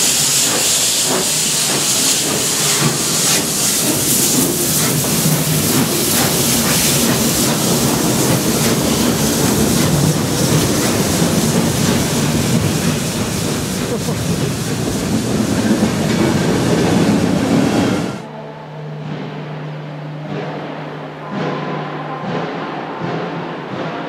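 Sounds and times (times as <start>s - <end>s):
steam hissing from locomotive: 0.0s - 18.2s
wheels clacking over rail joints: 0.0s - 18.2s
locomotive exhaust beats: 0.0s - 18.3s.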